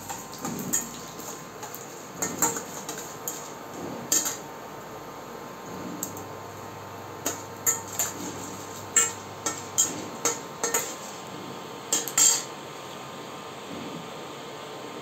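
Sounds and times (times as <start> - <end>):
metal spatula scraping a pan: 0.0 - 4.4, 7.2 - 11.3, 11.9 - 12.5.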